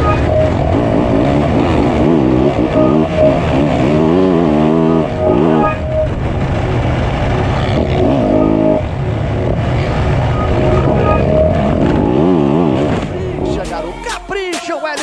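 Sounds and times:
motocross bike engine revving: 0:00.0 - 0:14.3
other dirt bike engines: 0:00.0 - 0:15.0.

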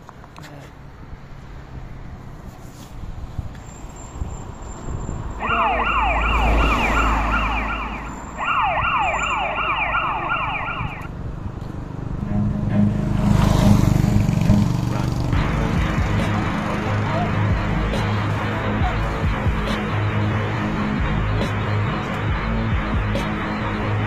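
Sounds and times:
yelp siren: 0:05.4 - 0:11.1
motorcycle engine approaching: 0:11.4 - 0:19.7.

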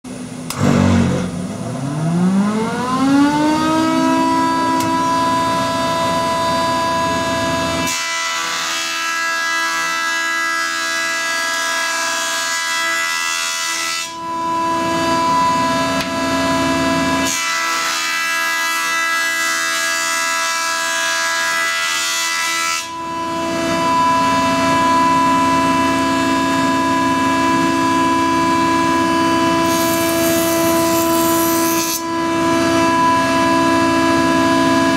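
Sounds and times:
planer cutterhead whine: 0:00.1 - 0:34.9
board being planed: 0:00.5 - 0:02.5, 0:03.9 - 0:24.1, 0:28.8 - 0:34.2.

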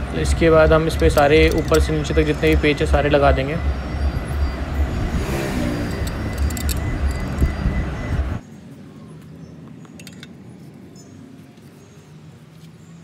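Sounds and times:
metal parts clinking: 0:00.8 - 0:02.8, 0:05.8 - 0:07.7, 0:10.0 - 0:10.4.

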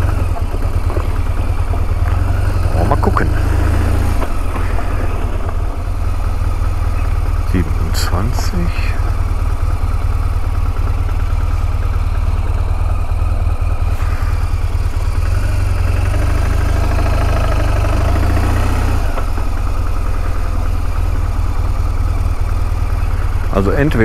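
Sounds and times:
tyres rolling on gravel: 0:00.0 - 0:08.8
motorcycle engine at low speed: 0:00.0 - 0:24.0.

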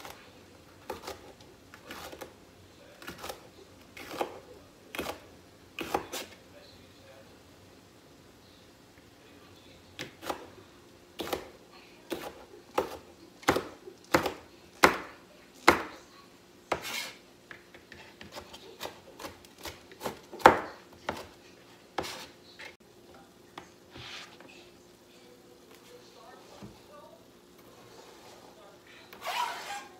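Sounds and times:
knife chopping on plastic board: 0:04.0 - 0:05.2, 0:05.8 - 0:06.4, 0:11.2 - 0:11.5, 0:12.1 - 0:16.0, 0:16.7 - 0:21.4.

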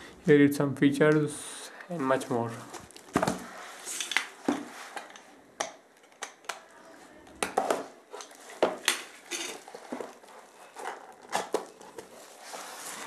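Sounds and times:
cardboard scraping: 0:09.6 - 0:13.0.

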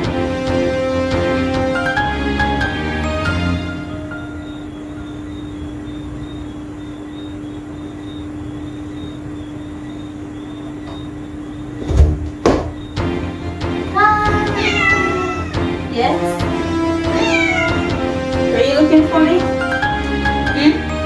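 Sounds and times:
steady low hum: 0:03.6 - 0:21.0
door opening: 0:11.8 - 0:13.0
knocks and rattles of a door: 0:11.8 - 0:13.2.

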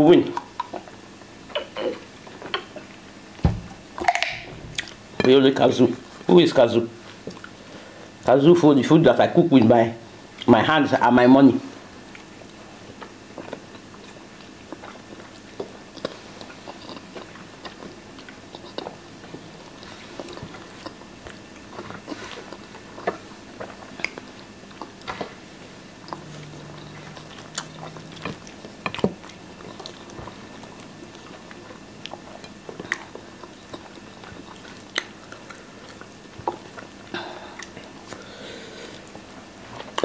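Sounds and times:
low hum: 0:03.5 - 0:06.0, 0:23.4 - 0:33.7
chewing and mouth sounds: 0:04.0 - 0:05.2, 0:07.0 - 0:07.6, 0:12.0 - 0:38.3, 0:38.9 - 0:40.0.

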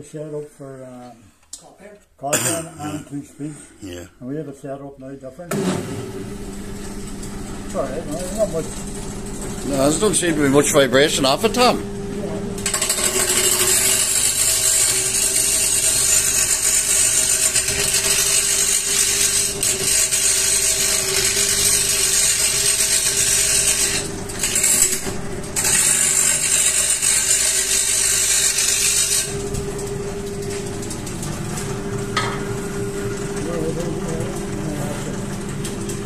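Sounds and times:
lathe humming: 0:06.1 - 0:36.0
chisel cutting wood: 0:12.7 - 0:29.3.

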